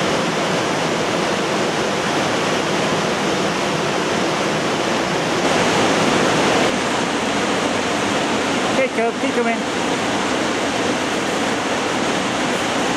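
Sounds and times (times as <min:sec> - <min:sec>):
river water rushing: 0:00.0 - 0:12.9.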